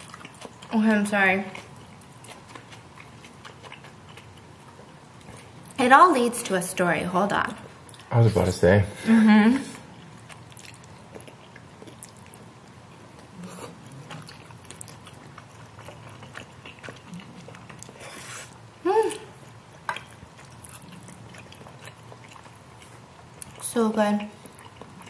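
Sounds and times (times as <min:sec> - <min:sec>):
person chewing and slurping noodles: 0:00.0 - 0:00.7, 0:01.6 - 0:05.7, 0:09.9 - 0:18.7, 0:19.4 - 0:23.7, 0:24.4 - 0:25.0.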